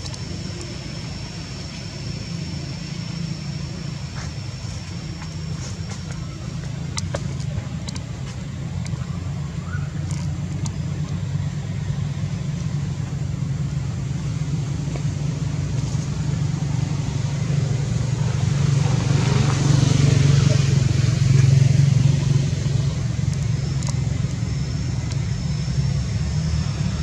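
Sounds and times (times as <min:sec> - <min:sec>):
engine humming: 0:00.0 - 0:27.0
faint clicks: 0:05.2 - 0:09.2.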